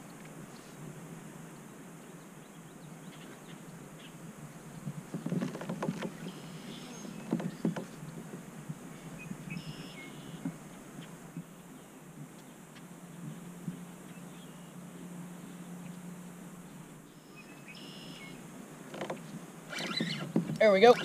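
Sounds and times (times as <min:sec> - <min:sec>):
steady low hum: 0:06.0 - 0:21.0.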